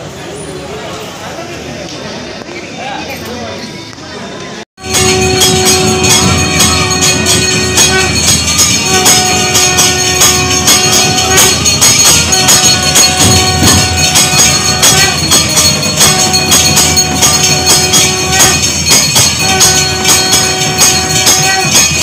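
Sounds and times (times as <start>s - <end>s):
bells and percussion beating: 4.8s - 22.0s
long held notes: 4.8s - 22.0s.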